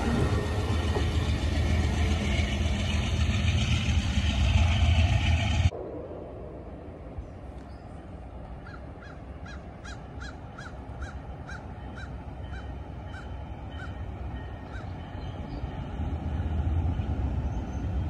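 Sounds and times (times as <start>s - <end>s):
low outdoor rumble: 0.0s - 14.3s.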